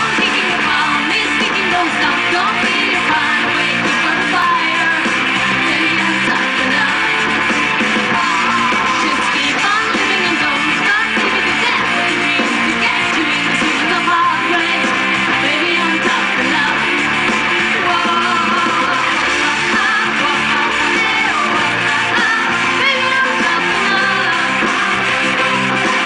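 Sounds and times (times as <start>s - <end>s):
woman singing into microphone: 0.0s - 7.2s, 8.3s - 25.6s
electric guitars: 0.0s - 26.0s.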